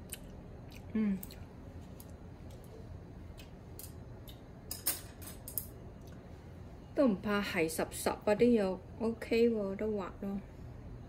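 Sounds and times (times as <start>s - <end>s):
person humming mm: 0.9s - 1.4s.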